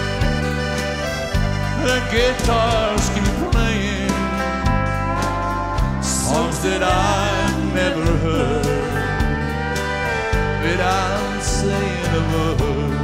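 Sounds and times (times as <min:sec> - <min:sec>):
country band playing: 0:00.0 - 0:13.0
man singing: 0:01.8 - 0:05.0, 0:05.9 - 0:13.0.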